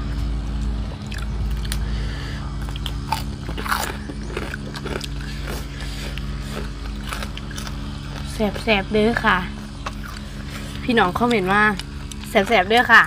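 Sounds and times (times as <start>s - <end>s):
people chewing food: 0.0s - 13.0s
short crunches and clicks: 0.5s - 1.9s, 2.6s - 8.7s.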